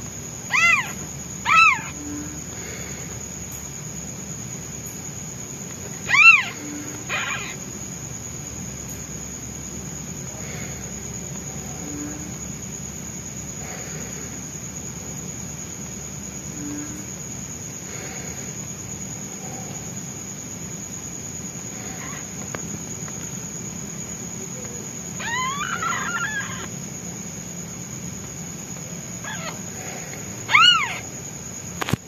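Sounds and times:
kitten mewing: 0:00.5 - 0:02.0, 0:06.1 - 0:07.6, 0:25.2 - 0:26.7, 0:30.5 - 0:31.0.

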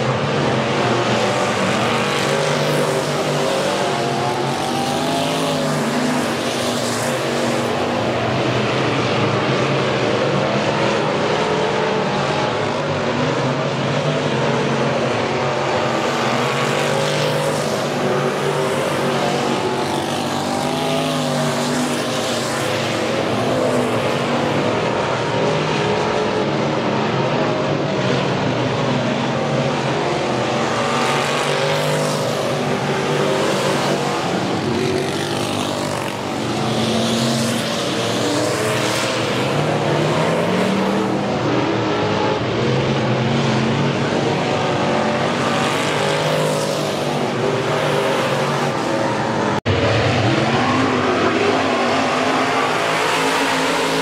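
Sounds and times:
cars rushing past: 0:00.0 - 0:54.0
race car engines revving: 0:00.0 - 0:54.0.

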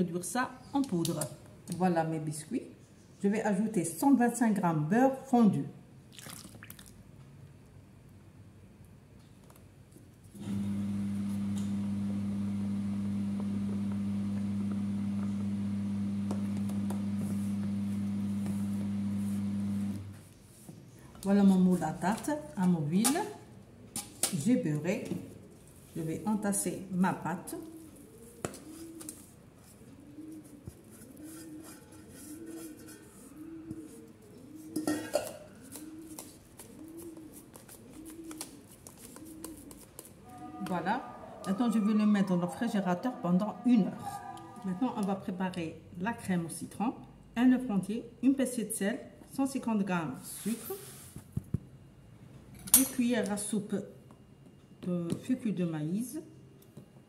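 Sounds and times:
low electrical hum: 0:00.0 - 0:36.6, 0:39.6 - 0:57.0
pigeon cooing: 0:27.6 - 0:44.8
spatula scraping steel bowl: 0:31.2 - 0:33.4
metal bowl clatter: 0:34.8 - 0:35.5.

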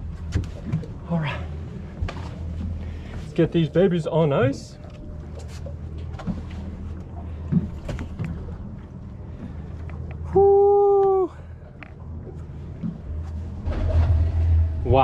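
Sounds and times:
boat engines idling: 0:00.0 - 0:15.0
person shouting woo: 0:10.3 - 0:11.4.

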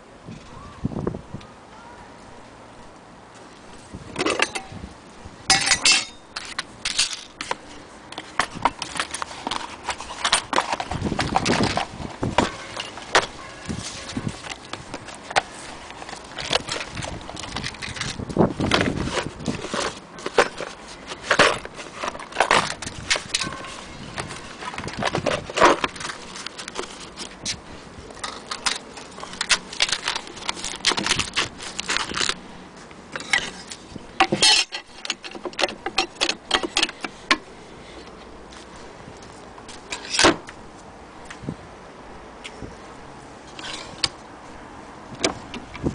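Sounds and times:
hands handling wooden case: 0:05.5 - 0:40.6.

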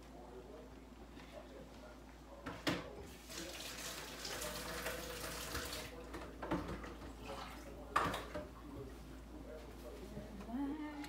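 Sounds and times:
water running into a sink: 0:03.2 - 0:06.0.

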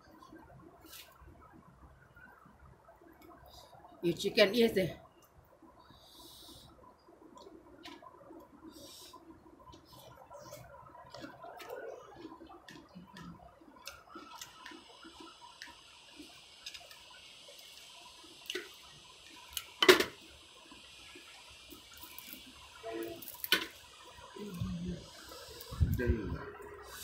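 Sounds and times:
wet chewing and lip-smacking: 0:09.7 - 0:17.0.

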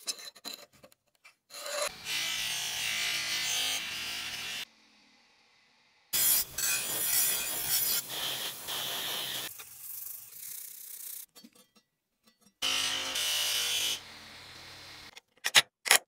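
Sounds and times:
abrasive rasping on steel: 0:06.2 - 0:11.8.

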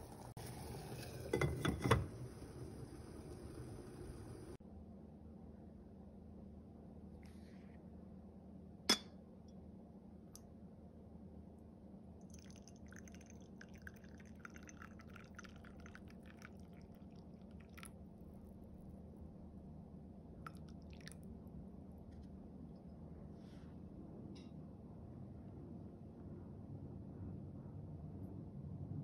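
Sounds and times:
tea pouring into cup: 0:00.2 - 0:04.6, 0:12.2 - 0:18.9, 0:20.4 - 0:21.3.

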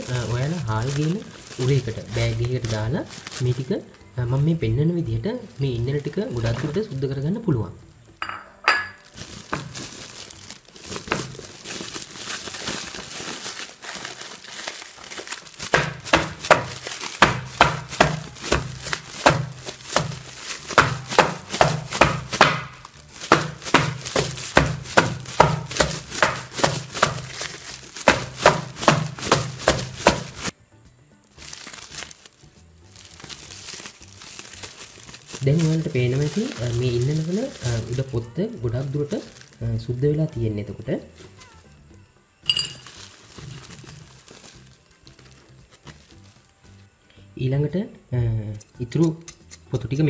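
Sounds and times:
plastic sack rustling: 0:00.0 - 0:07.7, 0:08.7 - 0:30.6, 0:31.3 - 0:41.7, 0:42.5 - 0:46.8
sack thumping on wooden board: 0:08.2 - 0:14.2, 0:15.1 - 0:30.6, 0:33.0 - 0:38.1.

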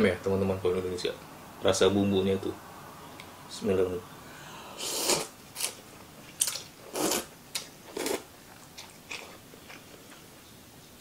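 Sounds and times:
person slurping noodles: 0:04.7 - 0:05.3, 0:06.9 - 0:07.3.

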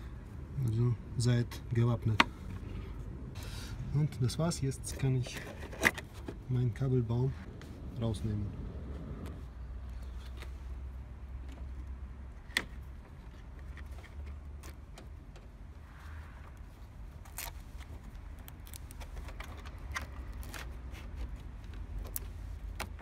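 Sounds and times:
plastic connectors clicking and rattling: 0:17.2 - 0:23.0.

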